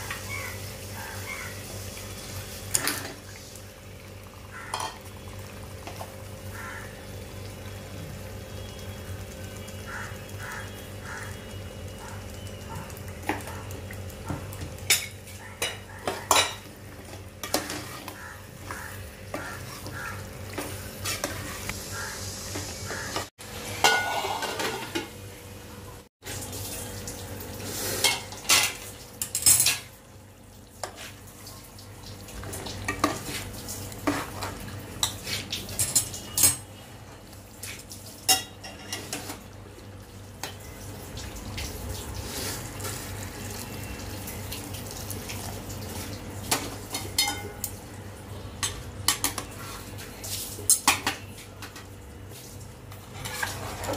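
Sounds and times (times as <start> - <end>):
metal spoon scraping a pot: 23.9 - 25.0.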